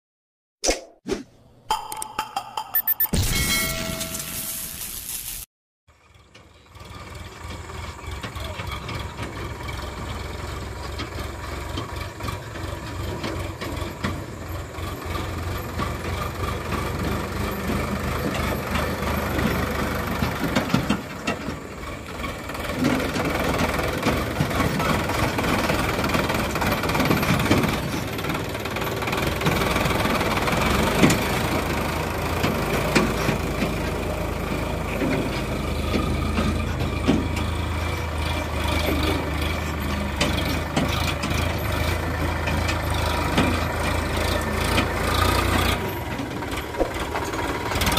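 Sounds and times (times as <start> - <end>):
tractor diesel engine running: 5.9 - 47.9.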